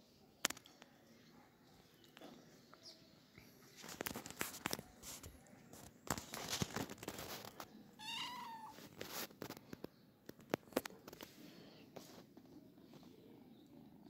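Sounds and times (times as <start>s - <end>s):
light clicks and rustles: 1.8s - 7.8s, 8.7s - 13.4s
cat meowing: 8.0s - 8.8s.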